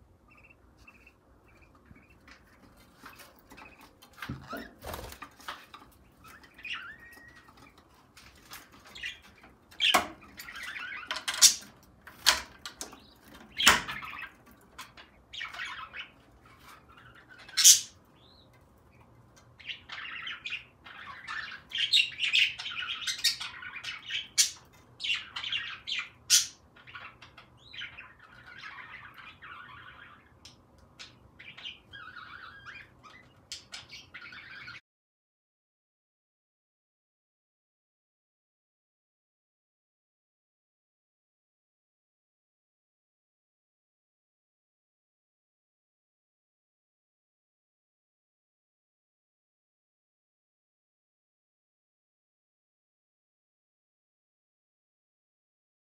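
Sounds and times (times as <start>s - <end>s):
budgerigars chirping: 0.2s - 7.9s, 8.6s - 11.7s, 12.9s - 34.8s.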